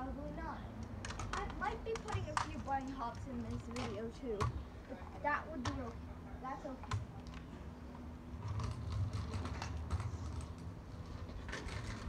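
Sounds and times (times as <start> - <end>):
scooter wheels clicking and rattling: 1.0 - 6.0, 6.7 - 12.0
scooter rolling over asphalt: 1.2 - 4.5, 8.0 - 12.0.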